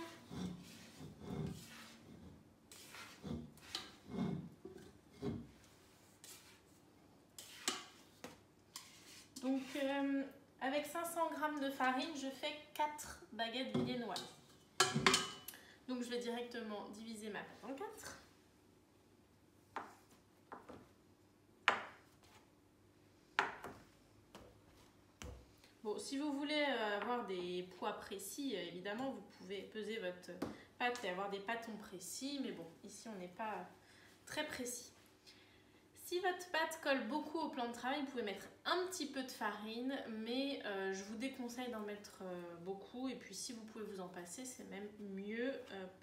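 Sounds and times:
dough scraped against metal bowl: 0.0s - 6.8s, 7.4s - 10.0s.

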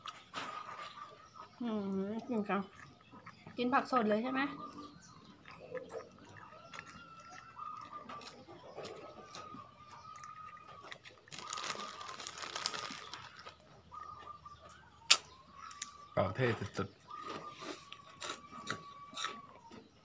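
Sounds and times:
plastic rustling: 11.3s - 13.6s.

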